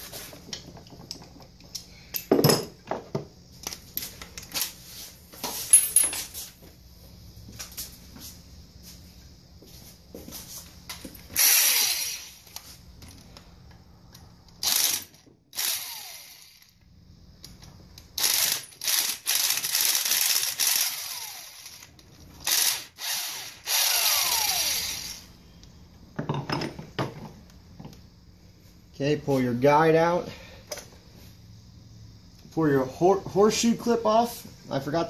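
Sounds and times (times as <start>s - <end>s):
power drill whining: 11.4s - 12.6s, 14.6s - 16.7s, 18.2s - 25.3s.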